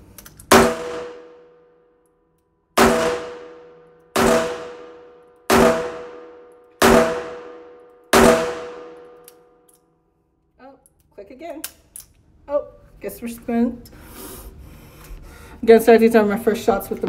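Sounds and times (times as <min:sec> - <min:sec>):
revolver shots echoing indoors: 0:00.2 - 0:10.0.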